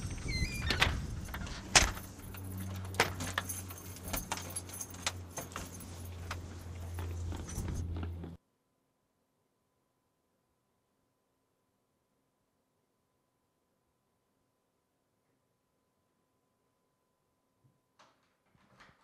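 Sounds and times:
keys jangling in lock: 0.3 - 7.9.

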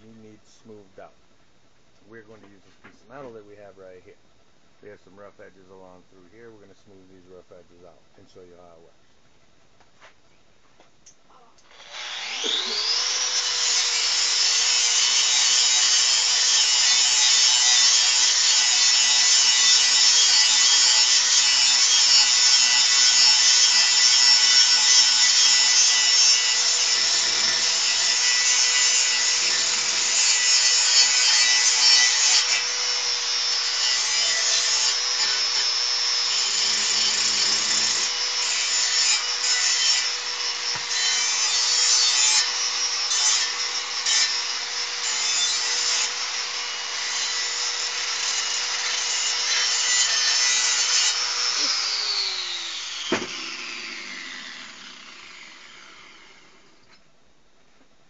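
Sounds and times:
angle grinder grinding metal: 11.6 - 57.0.

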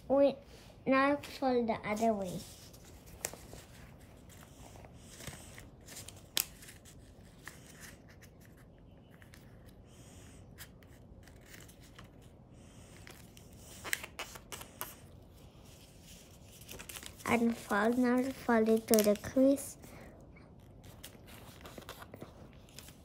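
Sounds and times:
paper rustling: 1.9 - 9.8, 10.6 - 12.3, 12.9 - 19.7, 20.6 - 23.0
crisp paper fold clicks: 16.6 - 19.4.

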